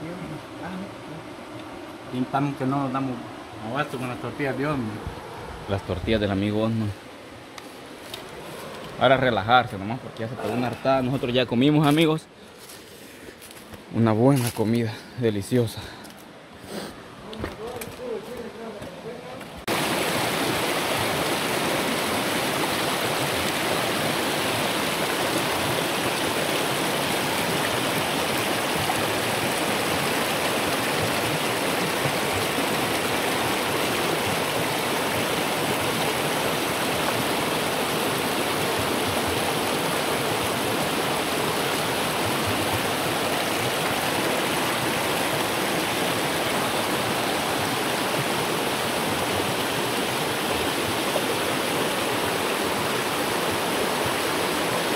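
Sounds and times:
river water rushing over rocks: 17.0s - 54.9s.

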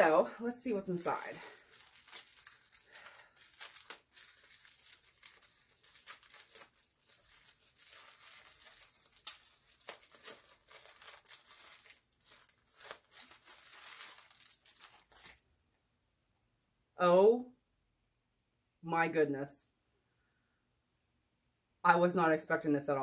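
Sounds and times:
plastic wrapping crinkling: 0.0s - 15.4s.

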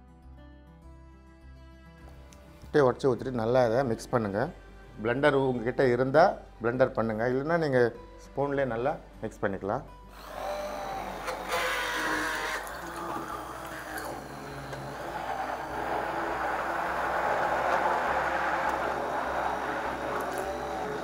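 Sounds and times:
hand blender motor whirring: 10.1s - 21.0s
liquid churning: 10.2s - 21.0s.

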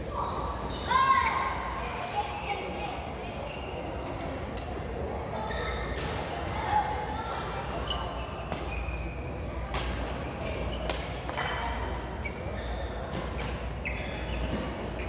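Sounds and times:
shoes squeaking on court: 7.6s - 9.5s, 10.2s - 15.0s.

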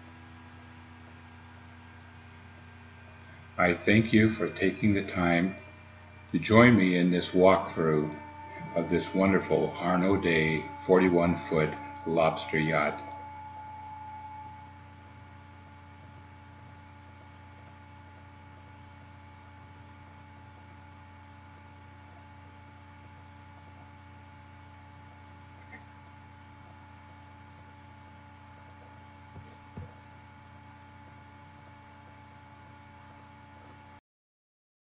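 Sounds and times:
faint steady hum: 0.0s - 34.0s
fixed tones: 2.5s - 20.2s.

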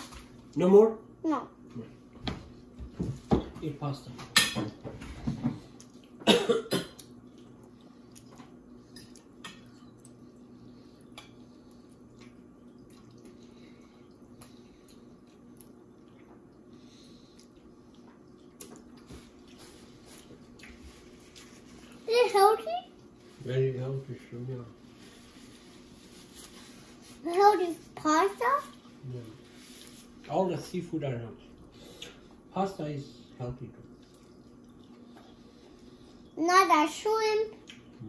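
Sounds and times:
faint steady hum: 0.0s - 38.0s
cough-like burst: 6.2s - 7.0s.

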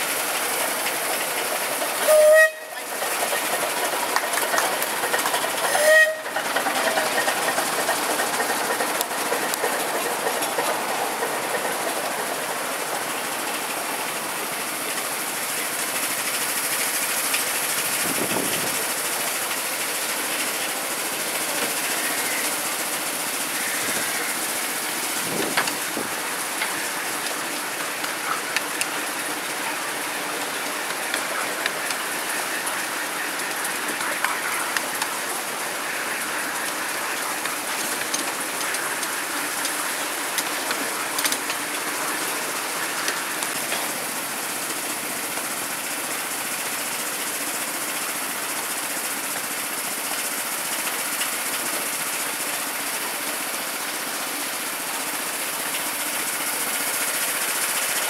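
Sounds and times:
miniature train running on track: 0.0s - 58.0s
sharp track clicks: 2.8s - 13.7s, 30.4s - 35.2s, 36.6s - 42.3s.

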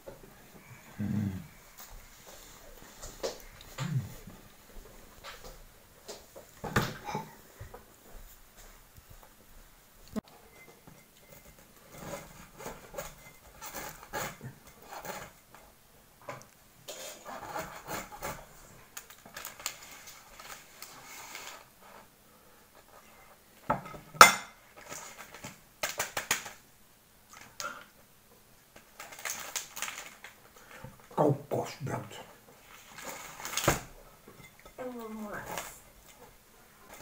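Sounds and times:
knife sawing through bread crust: 16.9s - 18.4s
plastic packet crinkling: 18.9s - 21.6s, 28.8s - 30.4s.

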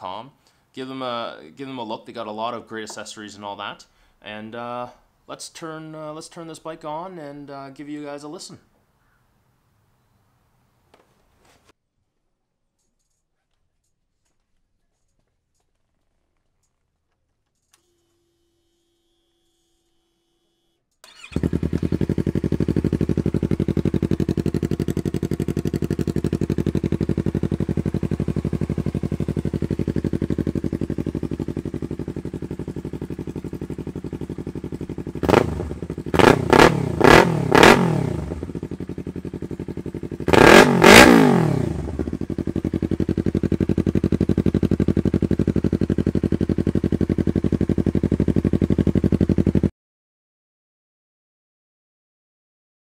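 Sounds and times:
motorcycle engine idling and revving: 21.1s - 49.7s.

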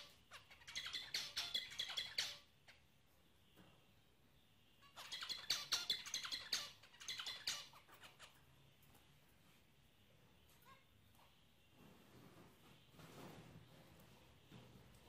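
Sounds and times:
finches chirping: 0.0s - 3.7s, 4.3s - 9.1s.

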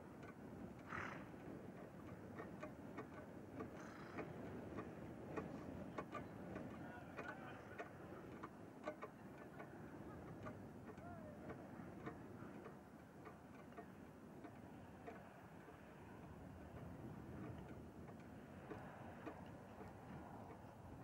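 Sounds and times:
light ticks: 0.1s - 21.0s.

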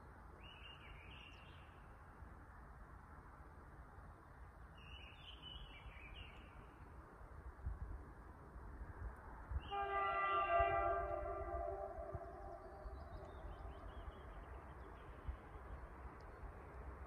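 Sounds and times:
wind rumble on microphone: 5.8s - 17.0s
train horn chord: 9.7s - 13.8s
bird chirping: 11.1s - 15.7s.

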